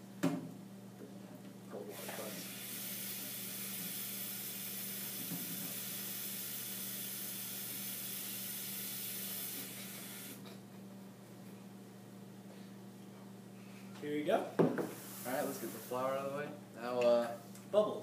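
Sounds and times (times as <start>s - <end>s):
tap running water: 2.5s - 10.5s.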